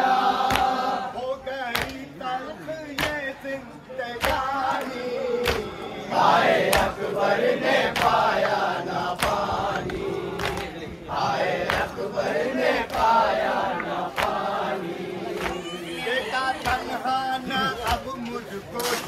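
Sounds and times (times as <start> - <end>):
men chanting in unison: 0.0 - 18.8
sharp rhythmic beat: 11.6 - 19.0.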